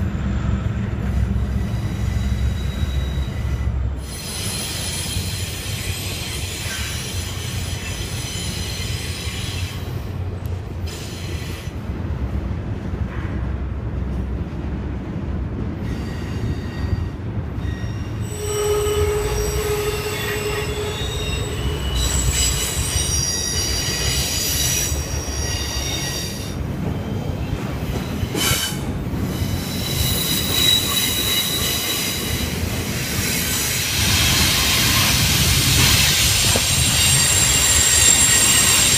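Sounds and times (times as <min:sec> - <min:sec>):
freight train rumbling: 0:00.0 - 0:38.9
metallic wheel squeals: 0:01.4 - 0:09.8, 0:15.9 - 0:27.1, 0:27.9 - 0:32.6, 0:33.6 - 0:38.9.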